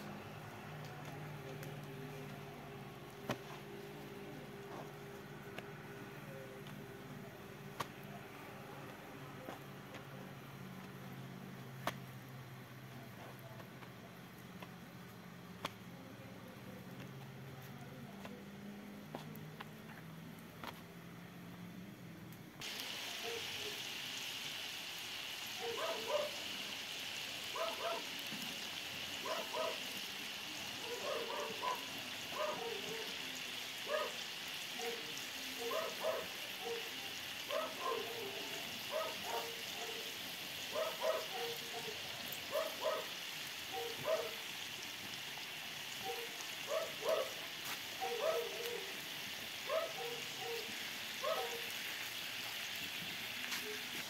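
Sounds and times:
meat and potatoes sizzling: 0.0 - 12.8, 22.6 - 54.0.

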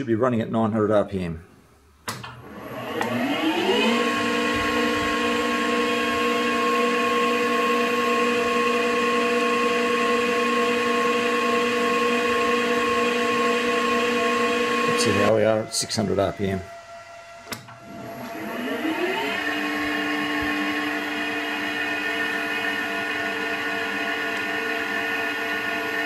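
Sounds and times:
lathe motor whining: 2.2 - 26.0.

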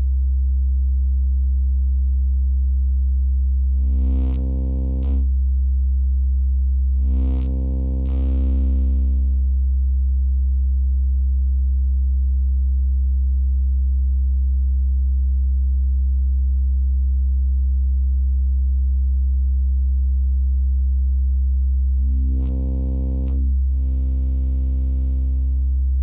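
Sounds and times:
synthesizer low held note: 3.6 - 5.3, 6.9 - 9.8, 22.0 - 26.0.

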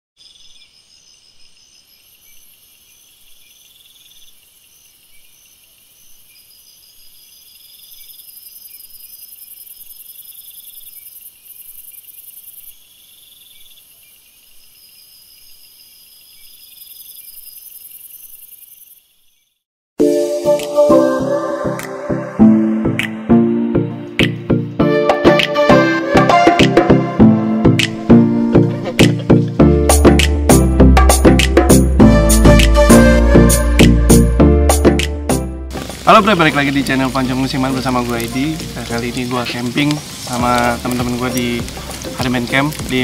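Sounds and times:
insects trilling: 0.2 - 19.6, 35.8 - 43.0.

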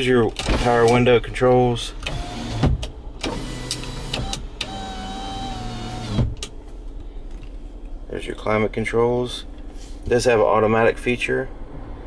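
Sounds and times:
power window motor running: 2.0 - 6.5.

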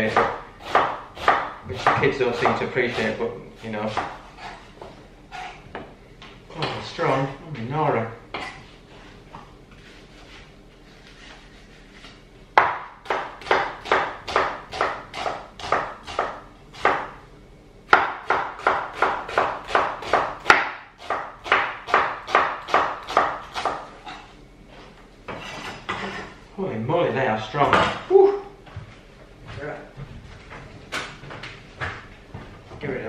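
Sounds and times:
knife chopping on wooden board: 0.0 - 3.2, 3.9 - 4.6, 12.6 - 17.2, 17.9 - 24.2.

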